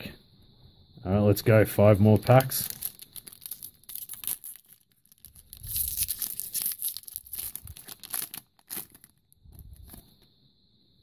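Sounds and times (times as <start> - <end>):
foil wrapper crinkling and tearing: 2.1 - 10.1
cards rustling: 2.1 - 10.2.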